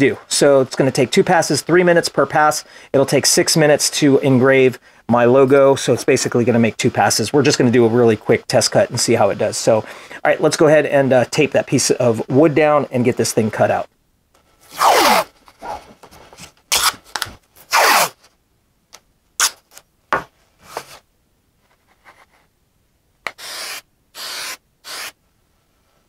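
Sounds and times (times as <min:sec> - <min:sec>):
tape ripping off roll: 0:16.7 - 0:18.3
aerosol can hisses: 0:23.3 - 0:25.2.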